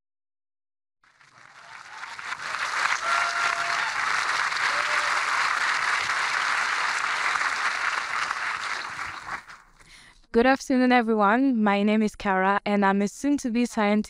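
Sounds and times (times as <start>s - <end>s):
audience applauding: 1.0s - 9.8s.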